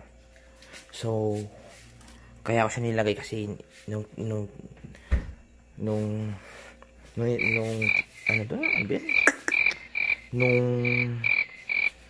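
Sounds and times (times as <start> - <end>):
man making wordless sounds: 7.2 - 11.4
frogs calling: 7.2 - 12.0.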